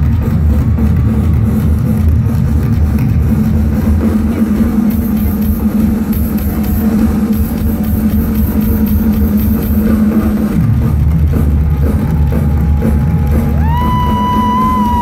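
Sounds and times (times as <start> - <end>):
heavy bass drum: 0.0 - 15.0
live rock drum solo: 3.4 - 15.0.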